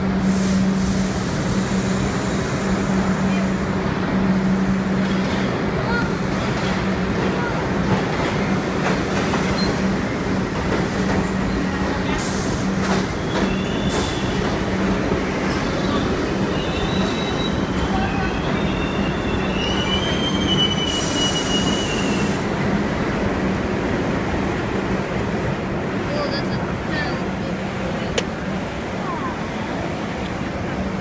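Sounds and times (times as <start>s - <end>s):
subway train rumble: 0.0s - 31.0s
high-pitched wheel squeal: 15.8s - 22.3s.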